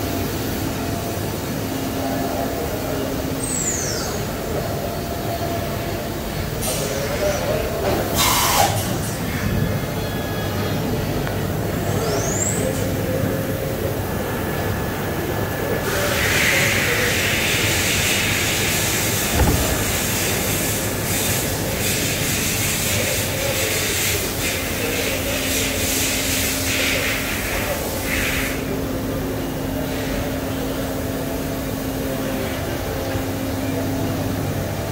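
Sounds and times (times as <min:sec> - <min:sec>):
machining center humming: 0:00.0 - 0:34.9
steady hiss: 0:15.9 - 0:28.6
single thump: 0:19.3 - 0:20.4.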